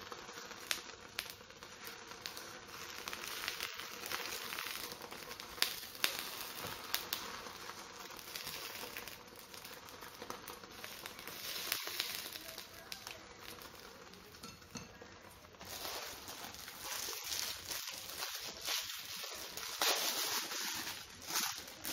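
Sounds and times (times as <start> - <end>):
meat sizzling on a hot plate: 0.0 - 21.9
paper crinkling: 15.6 - 21.9.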